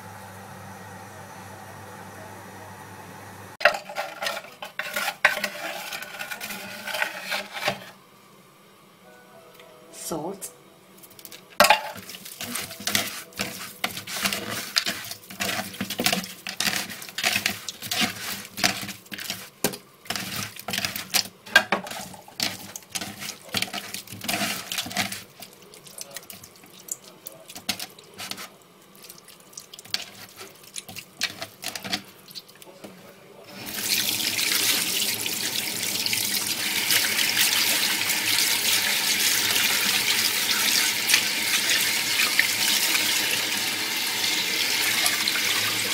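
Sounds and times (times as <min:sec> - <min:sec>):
chicken squelching in bowl: 0:22.6 - 0:32.8
water running into sink: 0:33.5 - 0:45.9.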